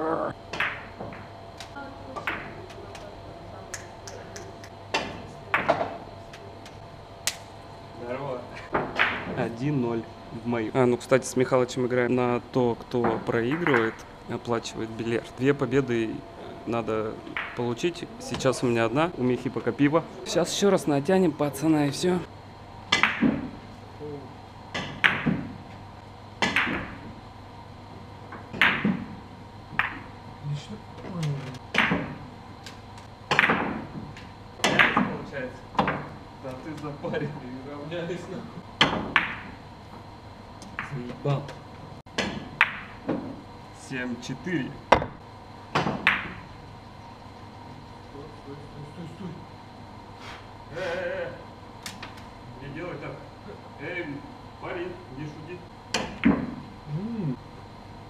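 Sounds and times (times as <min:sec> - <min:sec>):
billiard cue striking ball: 0:00.5 - 0:01.3, 0:08.7 - 0:09.4, 0:17.3 - 0:17.6, 0:22.9 - 0:23.6, 0:24.7 - 0:25.6, 0:26.4 - 0:27.2, 0:28.3 - 0:30.2, 0:31.7 - 0:32.3, 0:33.3 - 0:35.1, 0:38.8 - 0:39.6, 0:42.1 - 0:43.4, 0:44.9 - 0:46.5
billiard balls clacking: 0:00.5 - 0:03.1, 0:08.7 - 0:09.6, 0:13.0 - 0:14.1, 0:17.2 - 0:18.5, 0:22.9 - 0:23.6, 0:24.7 - 0:25.8, 0:26.4 - 0:27.2, 0:28.3 - 0:30.2, 0:31.6 - 0:36.2, 0:38.8 - 0:39.6, 0:40.6 - 0:43.4, 0:44.9 - 0:46.6.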